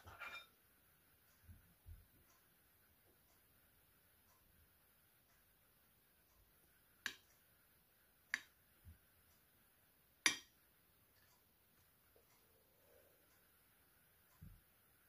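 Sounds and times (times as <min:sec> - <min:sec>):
spatula tapping a glass dish: 0:10.2 - 0:10.5.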